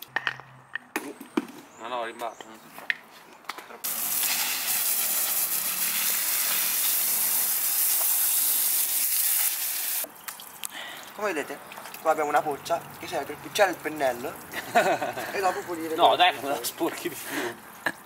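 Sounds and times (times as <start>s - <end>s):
hose spraying water: 3.8s - 10.1s.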